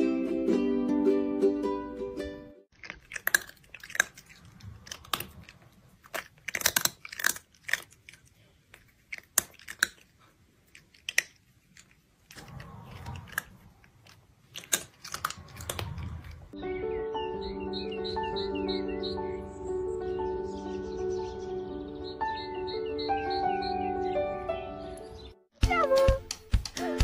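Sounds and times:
kitten chewing and smacking: 2.7s - 16.6s.

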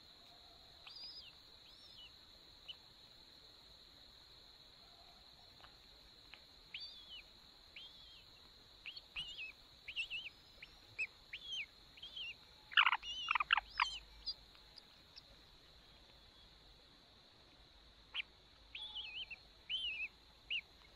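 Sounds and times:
chick begging chirps: 8.9s - 14.4s, 18.1s - 20.6s.

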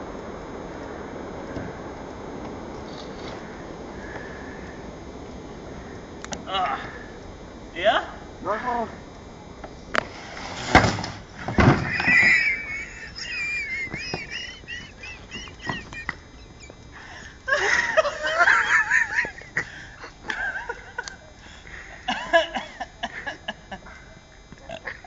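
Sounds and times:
crash: 10.0s - 12.3s
loud thumps: 10.0s - 12.6s
high-pitched shrieks of laughter: 11.8s - 19.3s.

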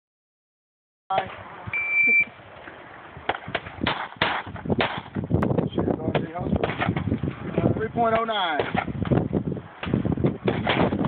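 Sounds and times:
shot timer beep: 1.8s - 2.3s
pistol shots: 3.6s - 5.1s.

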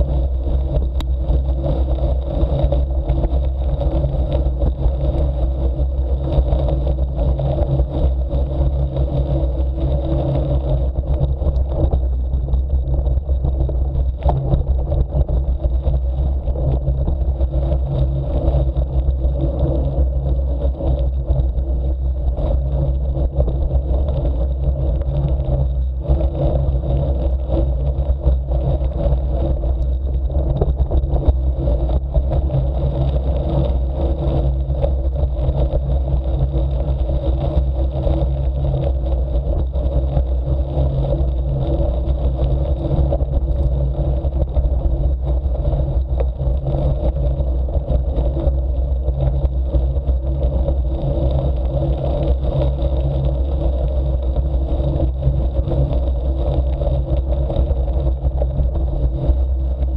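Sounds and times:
bicycle tyres on gravel: 0.0s - 59.9s
wind rumble on microphone: 0.0s - 59.9s.

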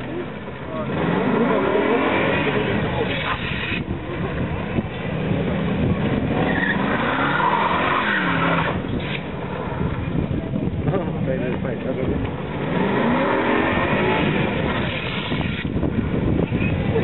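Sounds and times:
car engine revving: 0.0s - 17.0s
tyres squealing: 6.2s - 9.4s.

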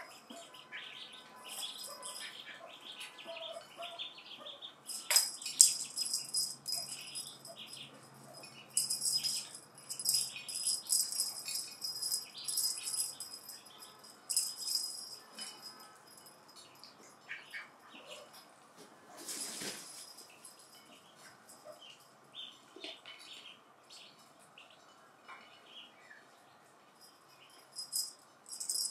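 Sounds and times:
cat toy rattling: 1.4s - 2.3s, 4.9s - 16.9s, 27.5s - 28.9s.

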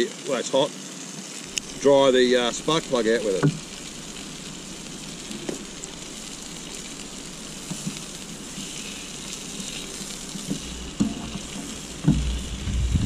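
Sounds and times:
sausages sizzling in a frying pan: 0.0s - 13.0s.

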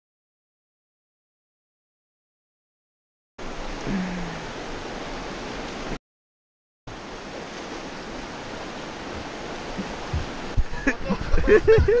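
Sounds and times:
river rapids rushing: 6.9s - 12.0s.

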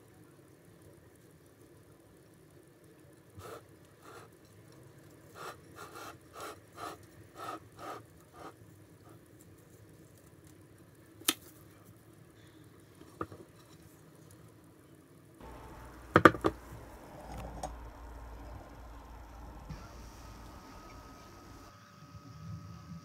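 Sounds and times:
soft scraping and rustling: 3.1s - 14.7s.

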